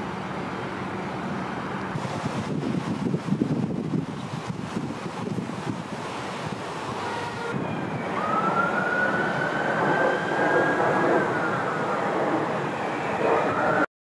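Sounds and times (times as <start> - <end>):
wind buffeting microphone: 2.0 - 12.7
siren wailing: 7.0 - 13.9.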